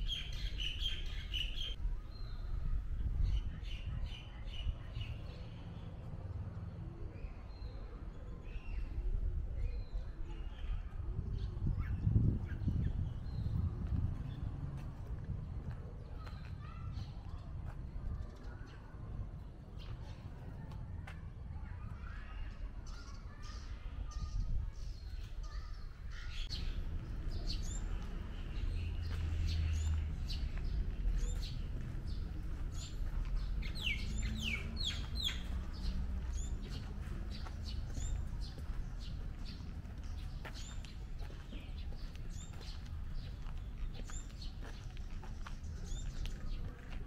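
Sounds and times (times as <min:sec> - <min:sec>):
birds chirping: 0:00.0 - 0:02.6, 0:21.6 - 0:47.0
steady low rumble: 0:26.4 - 0:46.8.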